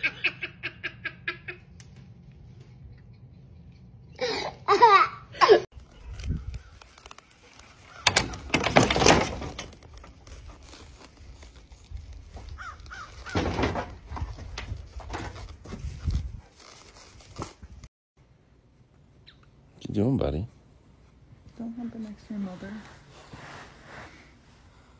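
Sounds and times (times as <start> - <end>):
crow cawing: 12.6 - 13.4.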